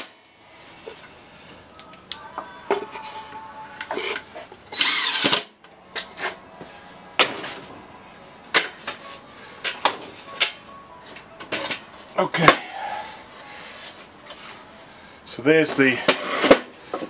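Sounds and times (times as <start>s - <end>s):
power drill whirring: 4.7s - 5.4s.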